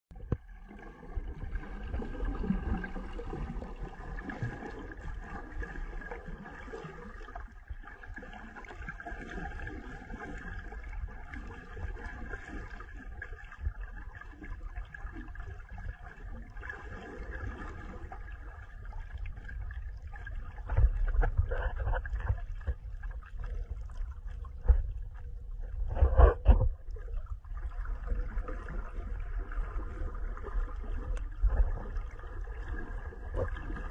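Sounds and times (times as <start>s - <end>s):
water sloshing and gurgling: 0.1s - 33.9s.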